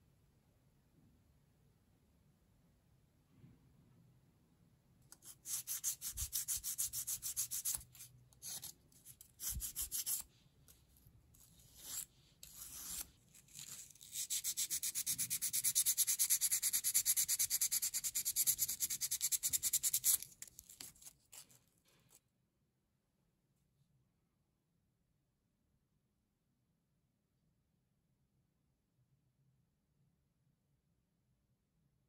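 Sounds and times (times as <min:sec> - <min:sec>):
abrasive scraping thin metal strip: 0:11.4 - 0:14.9.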